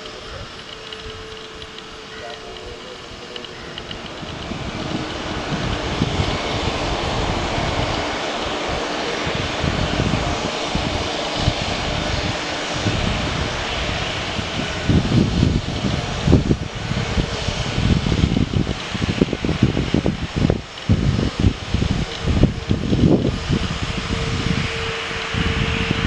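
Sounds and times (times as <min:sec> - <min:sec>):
jet engines roaring: 0:00.0 - 0:26.0.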